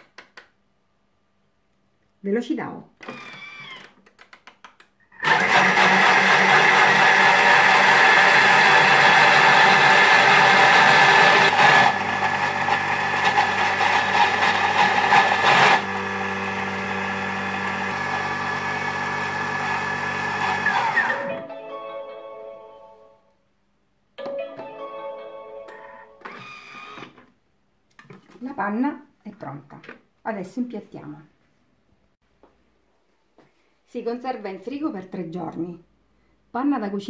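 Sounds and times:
kitchen blender running: 5.2 - 21.3.

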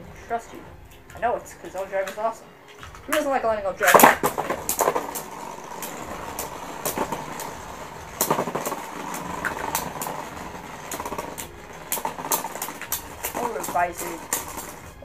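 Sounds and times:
spinning tops clacking together: 3.8 - 15.0
spinning tops hissing in plastic stadium: 3.8 - 15.0.

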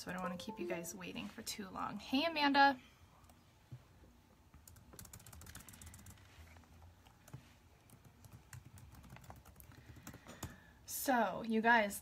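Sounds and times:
low room hum: 0.0 - 12.0
typing on keyboard: 4.6 - 6.3, 7.3 - 10.6.

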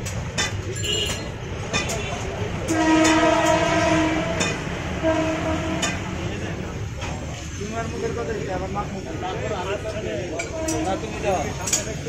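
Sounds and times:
horn blast: 2.7 - 6.2.

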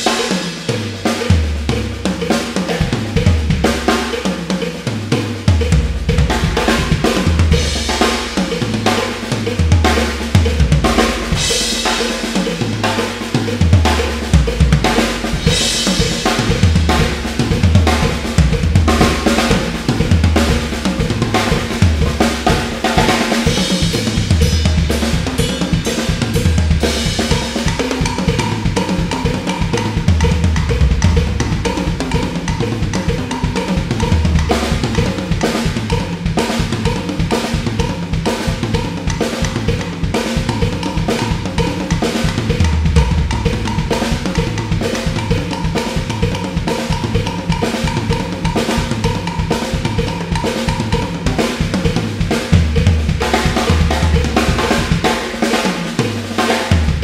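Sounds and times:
drum kit solo: 0.0 - 57.0
bass drum runs: 5.5 - 37.0, 40.4 - 46.3, 50.9 - 55.2.

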